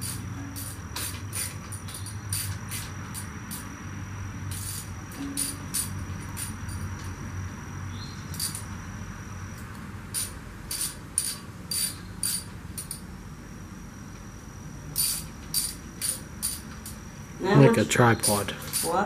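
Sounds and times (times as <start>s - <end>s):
ratchet wrench clicking: 0.0s - 3.7s, 4.5s - 7.1s, 8.3s - 8.7s, 10.1s - 13.0s, 15.0s - 17.0s, 18.6s - 19.0s.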